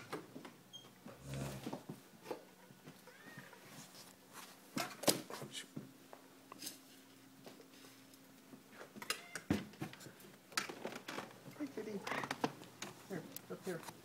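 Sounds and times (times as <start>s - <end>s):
faint cat meowing: 3.0s - 3.6s.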